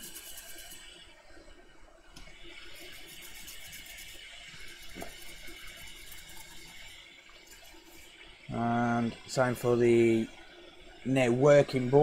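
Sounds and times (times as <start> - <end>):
toothbrush scrubbing wet circuit board: 0.0 - 1.2, 2.2 - 10.6.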